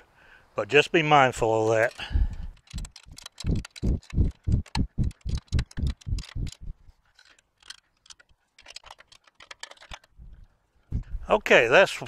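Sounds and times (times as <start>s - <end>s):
ratchet wrench clicking: 2.0s - 10.1s.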